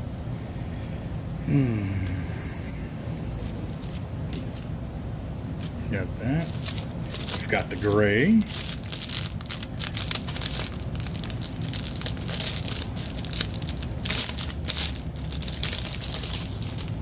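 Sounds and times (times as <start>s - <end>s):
plastic bag crinkling: 6.4s - 17.0s.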